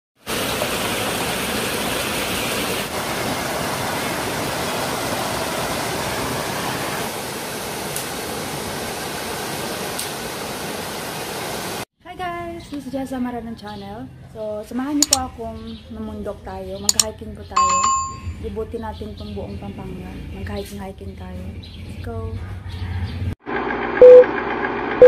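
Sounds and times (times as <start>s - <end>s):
waterfall splashing over rocks: 0.2s - 11.8s.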